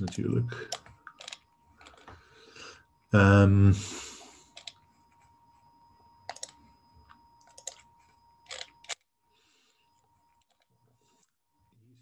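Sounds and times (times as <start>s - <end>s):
mouse and keyboard clicks: 6.3s - 6.6s.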